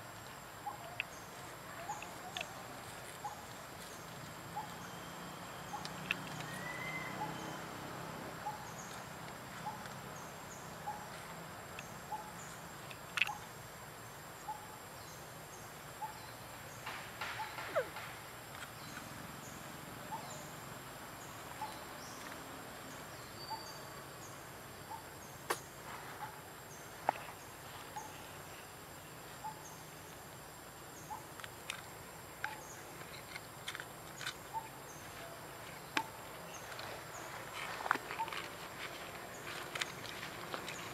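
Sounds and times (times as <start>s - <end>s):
forest background ambience: 0.0s - 40.9s
short repeating bird or insect call: 4.6s - 7.8s.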